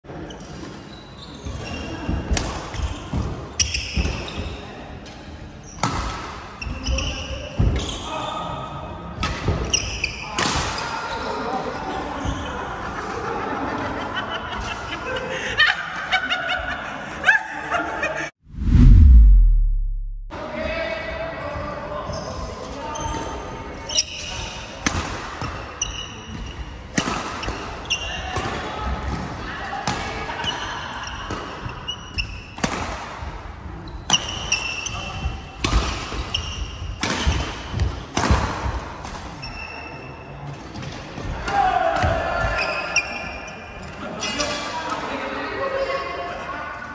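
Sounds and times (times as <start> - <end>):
people laughing: 12.5 - 18.3
deep boom with low ringing: 18.5 - 20.3.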